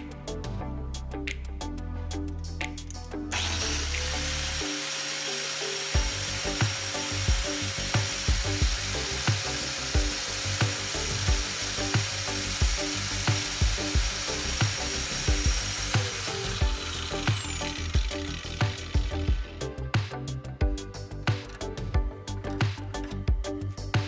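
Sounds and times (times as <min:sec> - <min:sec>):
background music with steady beat: 0:00.0 - 0:24.0
angle grinder grinding drill bit: 0:03.3 - 0:19.8.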